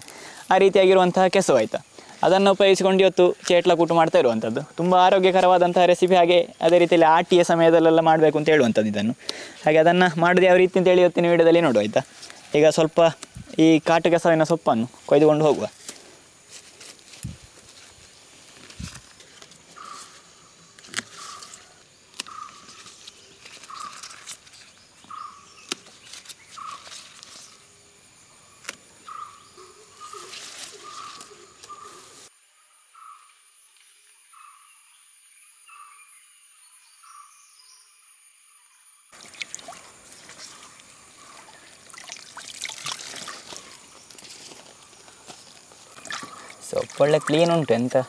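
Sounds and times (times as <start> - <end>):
leaves rustling: 0.0 - 32.4, 39.1 - 48.0
stalks snapping: 13.1 - 13.4, 20.7 - 27.4, 28.6 - 28.8
water splashing and trickling: 39.1 - 48.0.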